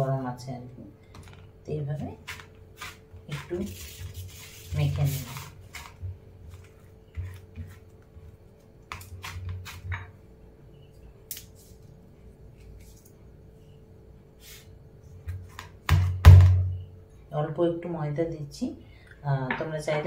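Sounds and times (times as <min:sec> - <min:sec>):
hands kneading dough on metal: 0:01.8 - 0:10.1.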